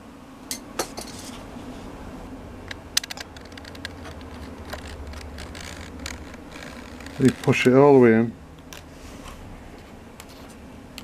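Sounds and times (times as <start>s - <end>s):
low steady hum: 0.0s - 11.0s
metal caddy clicking: 3.0s - 7.8s.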